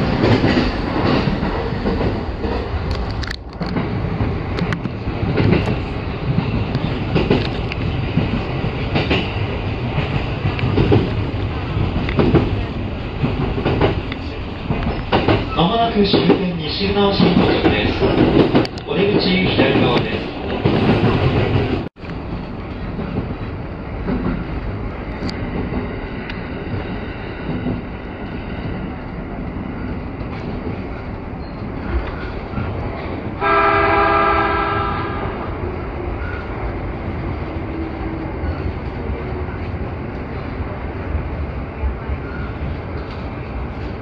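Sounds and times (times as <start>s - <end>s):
train motors and wheels rumbling: 0.0s - 44.0s
train horn: 33.4s - 35.5s.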